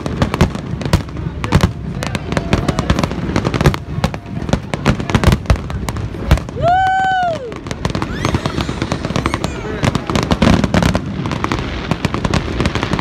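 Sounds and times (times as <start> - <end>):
fireworks bursts and bangs: 0.0 - 13.0
person whooping: 6.5 - 9.9.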